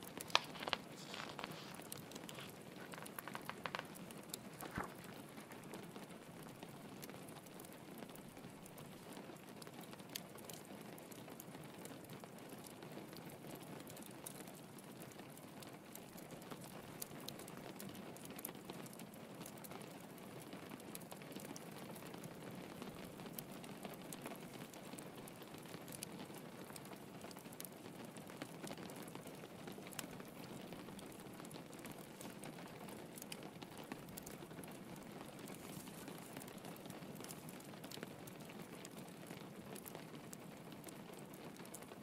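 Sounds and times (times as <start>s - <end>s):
log fire crackling: 0.0s - 42.0s
rain pattering: 0.0s - 42.0s.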